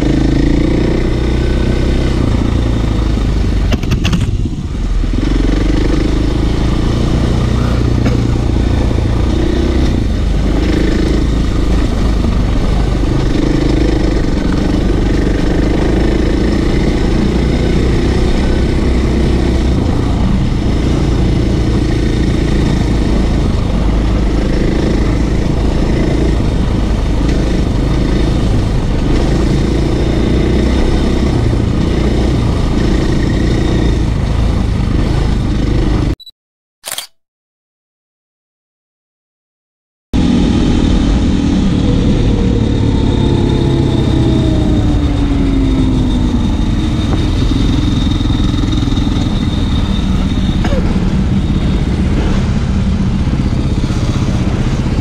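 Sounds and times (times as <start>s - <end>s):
motorcycle engine revving: 0.0s - 36.2s, 40.2s - 55.0s
sharp clicks: 36.2s - 37.2s.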